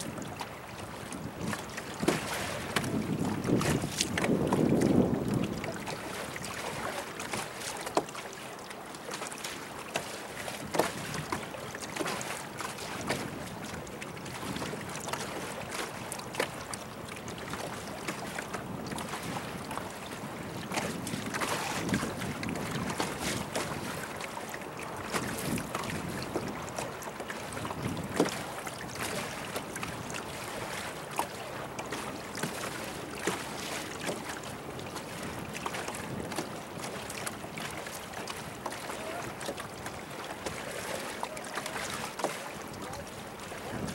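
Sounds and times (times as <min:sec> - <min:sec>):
wind buffeting microphone: 0:00.0 - 0:06.6, 0:18.5 - 0:24.1, 0:25.0 - 0:30.2, 0:42.8 - 0:43.9
water lapping against boat hull: 0:00.0 - 0:43.9.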